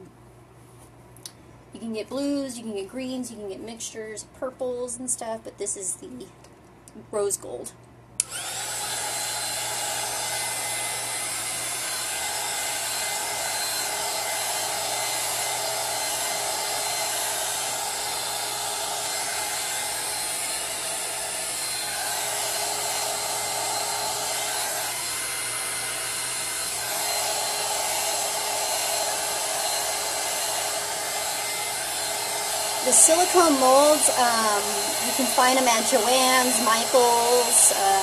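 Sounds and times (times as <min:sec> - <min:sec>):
heat gun blowing: 0:08.2 - 0:38.0.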